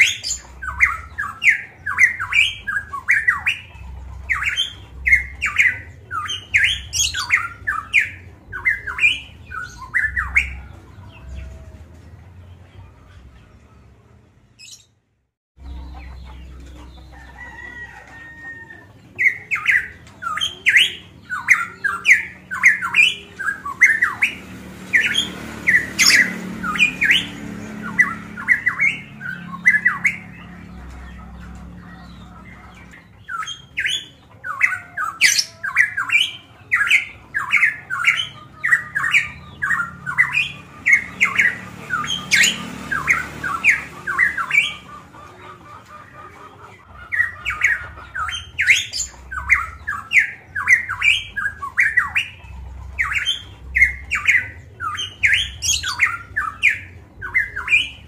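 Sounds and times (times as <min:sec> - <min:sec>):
bird calling harsh notes: 0:00.0 - 0:10.7, 0:19.0 - 0:31.0.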